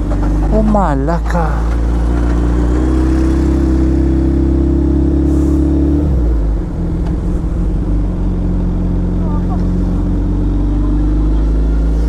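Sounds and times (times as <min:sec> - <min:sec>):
motorcycle engine running: 0:00.0 - 0:12.0.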